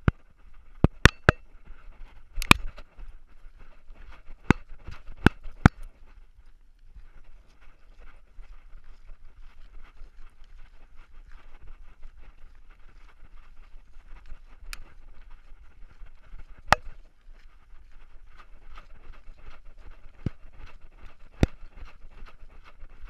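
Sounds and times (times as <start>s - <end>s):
camera rustling and knocking: 0.0s - 1.5s, 2.3s - 2.9s, 16.5s - 17.0s
sharp clicks: 2.4s - 2.8s.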